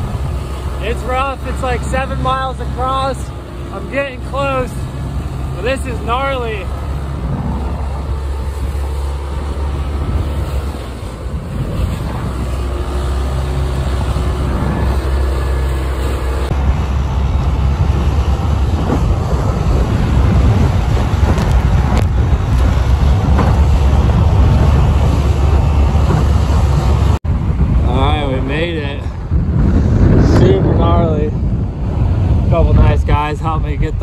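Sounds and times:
water splashing against hull: 0.0 - 27.2
outboard motor running: 0.0 - 29.0
wind buffeting microphone: 0.0 - 34.0.

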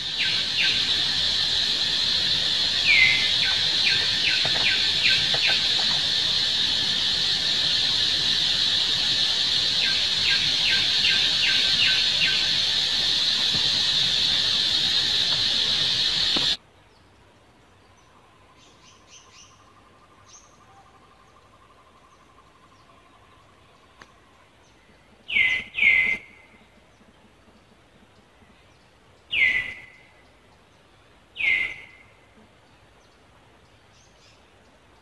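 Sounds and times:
faint chirps: 0.0 - 16.6
loud insect drone: 0.0 - 16.6.

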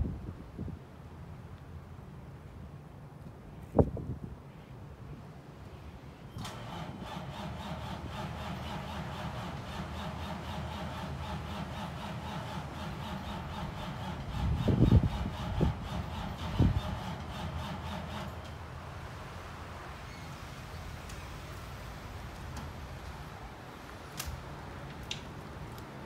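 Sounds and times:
diesel engine cranking: 6.4 - 25.8.

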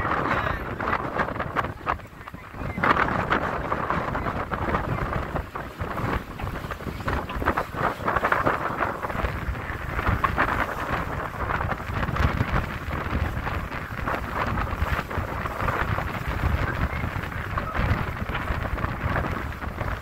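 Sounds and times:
sea water rushing along hull: 0.0 - 20.0
wind buffeting microphone: 0.0 - 20.0.

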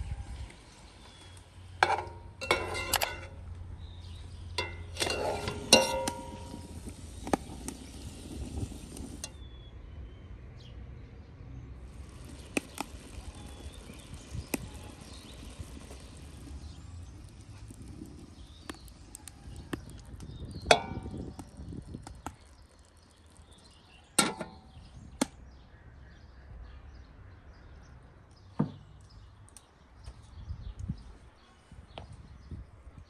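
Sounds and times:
cooking utensils knocking and clinking: 1.8 - 3.3, 4.6 - 6.8.

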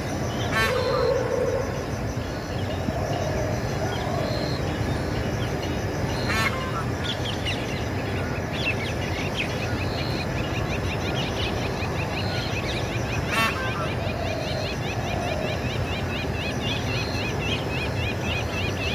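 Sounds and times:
low bird call: 0.0 - 5.2.

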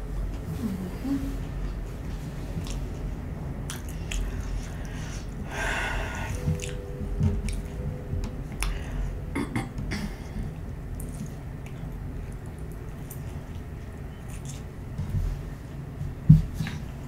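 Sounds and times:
chewing food: 2.5 - 5.4, 6.3 - 7.8, 9.6 - 15.5.

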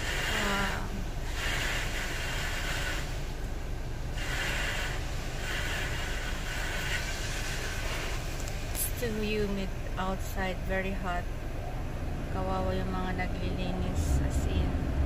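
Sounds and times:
muffled hissing bursts: 0.0 - 9.6
low cabin rumble: 5.0 - 15.0.

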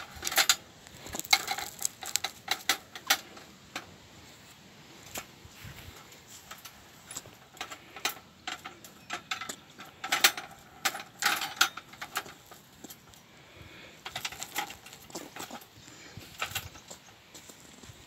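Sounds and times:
wire cage trap rattling: 0.0 - 3.4, 14.0 - 15.7.

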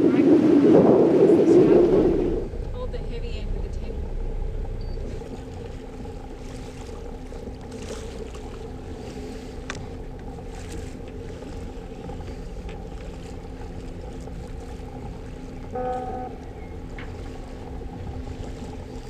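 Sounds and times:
wind noise: 0.0 - 6.6
water wash: 0.0 - 19.0
diesel engine drone: 0.9 - 19.0.

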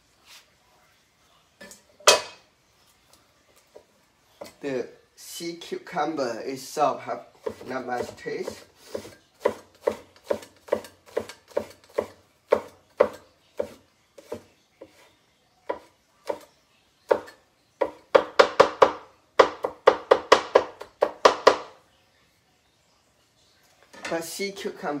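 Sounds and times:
cleaver chopping on wooden board: 7.4 - 15.0, 17.1 - 21.7.

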